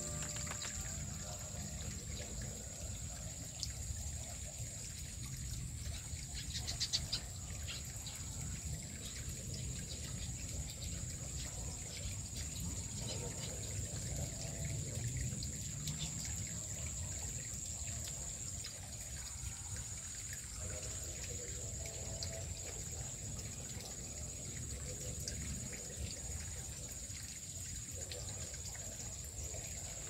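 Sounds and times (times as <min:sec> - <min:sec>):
steady high-pitched hum: 0:00.0 - 0:04.8
stream trickling over rocks: 0:00.0 - 0:30.0.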